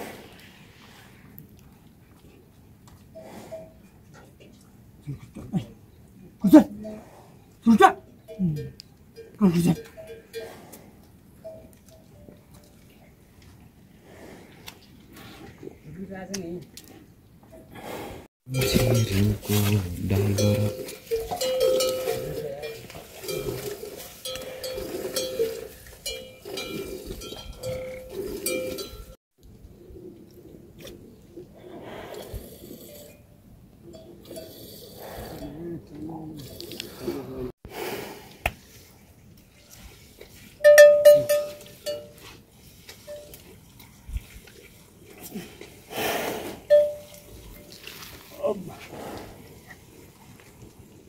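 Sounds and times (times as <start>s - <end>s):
livestock bells clanking: 8.2s - 10.6s, 11.4s - 12.3s, 18.5s - 29.2s, 40.6s - 42.2s, 46.7s - 47.3s
rustling: 18.5s - 29.2s, 46.6s - 51.0s.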